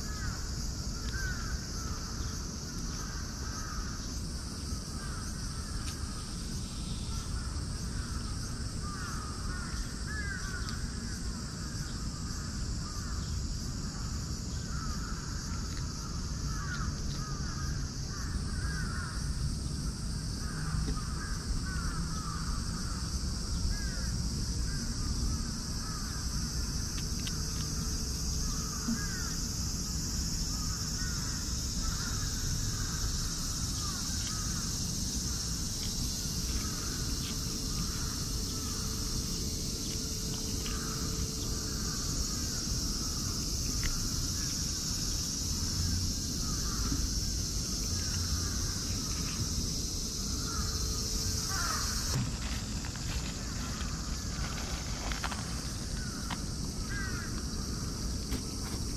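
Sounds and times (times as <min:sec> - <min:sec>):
high hiss: 0:20.4 - 0:58.9
birds calling: 0:50.3 - 0:54.7.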